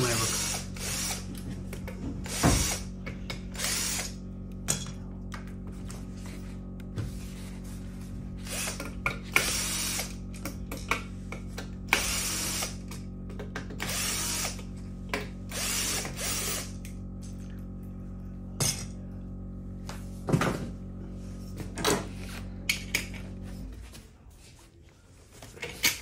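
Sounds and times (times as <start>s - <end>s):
cordless drill running: 0.0s - 4.4s, 8.3s - 10.7s, 11.8s - 17.1s.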